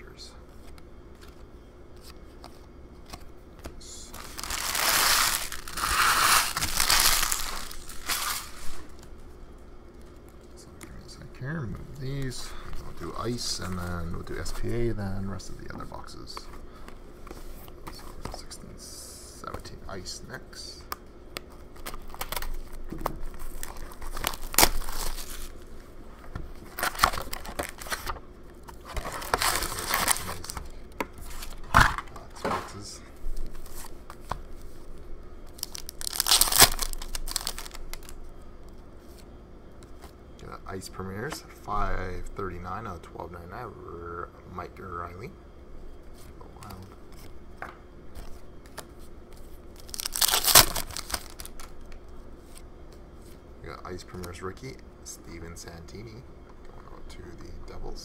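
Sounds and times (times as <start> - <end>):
plastic packaging crumpled by hand: 4.1 - 9.0, 23.4 - 25.5, 28.9 - 30.7, 35.5 - 38.2, 49.8 - 51.8
plastic shrink-wrap crinkling and tearing: 4.2 - 9.0, 21.8 - 22.8, 23.4 - 25.5, 28.9 - 30.7, 35.5 - 38.2, 49.8 - 51.8.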